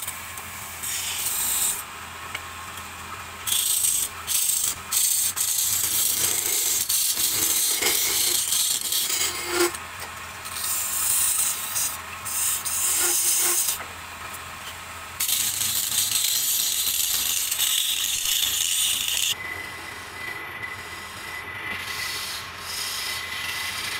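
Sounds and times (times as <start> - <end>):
chisel scraping spinning wood: 3.5 - 9.8, 10.5 - 13.9, 15.2 - 23.9.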